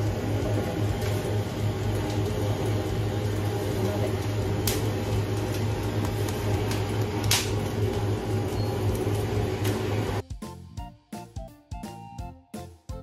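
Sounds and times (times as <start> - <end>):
machine hum and hiss: 0.0 - 10.2.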